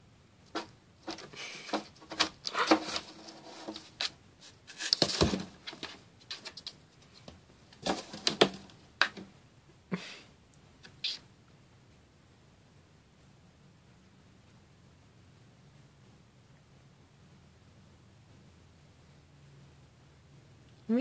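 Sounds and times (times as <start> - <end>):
cat claws scratching cardboard: 0.5 - 9.2
knocks against cardboard: 5.0 - 5.9.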